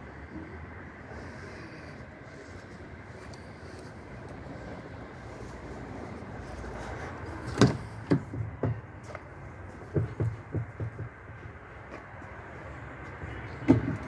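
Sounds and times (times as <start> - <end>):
knocks on truck cab: 9.9 - 11.2, 13.6 - 14.0.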